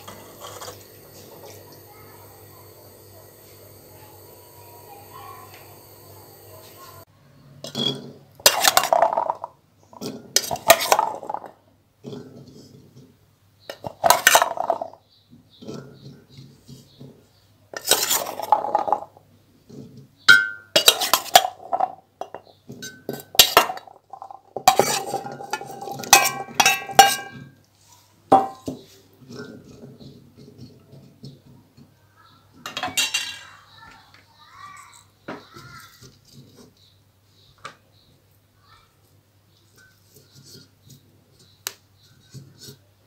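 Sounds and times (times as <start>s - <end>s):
metal spoon clinking on bowl and pot: 20.3s - 23.9s, 24.7s - 27.5s, 32.6s - 33.6s.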